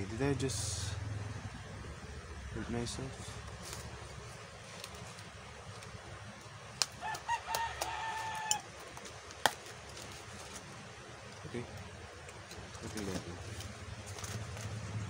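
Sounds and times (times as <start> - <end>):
rooster crowing: 7.0 - 8.7.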